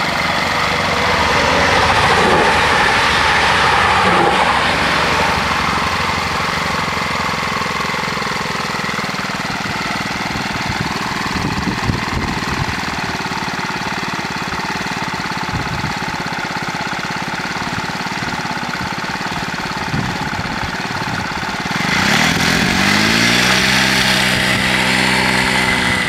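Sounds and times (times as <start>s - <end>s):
motorbike engine idling and revving: 0.0s - 26.0s.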